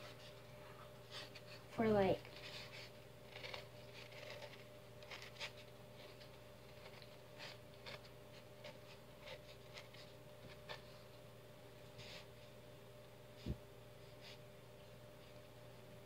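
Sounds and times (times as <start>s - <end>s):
pen scratching on cup: 2.4s - 10.1s.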